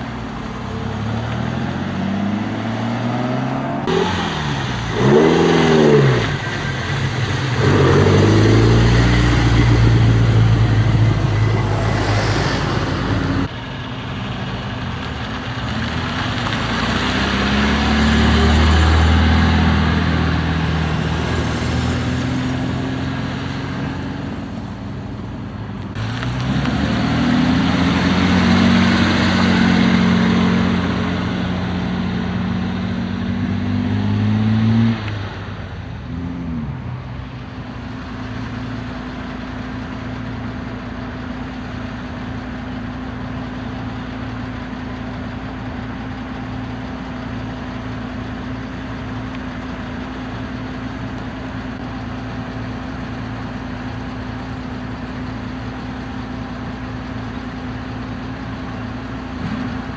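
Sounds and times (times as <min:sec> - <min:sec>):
cars driving past: 0:00.0 - 0:42.2
car engines accelerating: 0:00.0 - 0:59.9.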